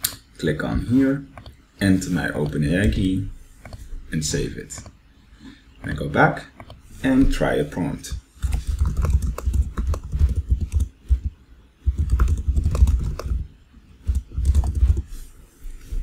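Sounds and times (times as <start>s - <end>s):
typing on computer keyboard: 8.4s - 13.4s, 14.0s - 15.0s.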